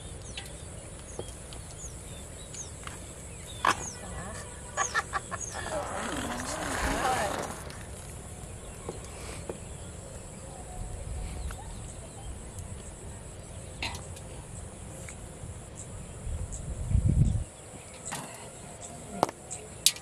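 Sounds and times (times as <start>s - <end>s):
distant bird calls: 0.0s - 10.7s
faint insect hiss: 0.0s - 20.0s.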